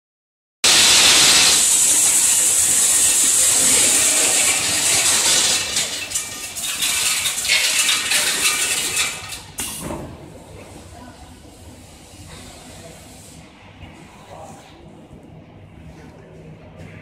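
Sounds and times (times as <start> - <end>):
feed pellets pouring into hopper: 0.6 - 9.5.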